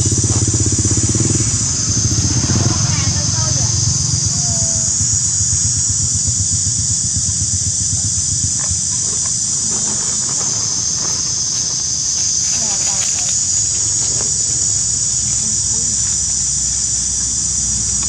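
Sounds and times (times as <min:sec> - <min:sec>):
low rumble: 0:00.0 - 0:10.8
insects droning: 0:00.0 - 0:18.0.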